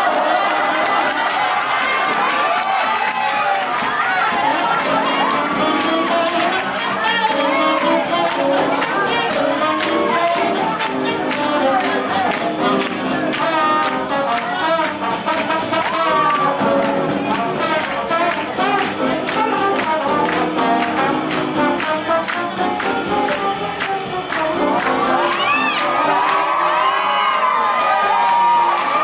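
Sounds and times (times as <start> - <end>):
crowd whooping and cheering: 0.0 - 13.9, 23.7 - 29.0
swing jazz with brass horns: 0.0 - 29.0.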